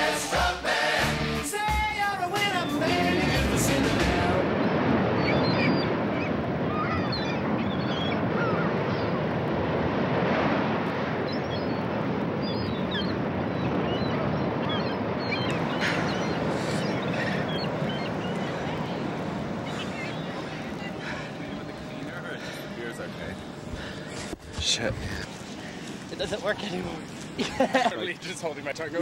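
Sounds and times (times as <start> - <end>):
surf rushing on a beach: 0.0 - 29.0.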